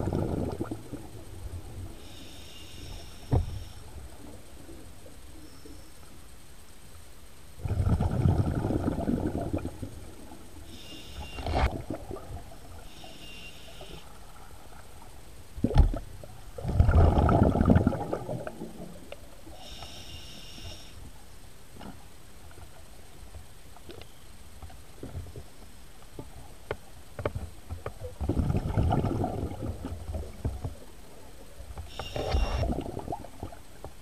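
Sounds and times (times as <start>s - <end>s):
exhaled bubbles rushing: 0.0s - 1.1s, 7.6s - 9.9s, 15.6s - 19.0s, 28.2s - 30.1s, 32.5s - 33.6s
regulator inhalation whistling hiss: 2.0s - 3.8s, 10.7s - 11.5s, 12.9s - 14.1s, 19.5s - 21.0s.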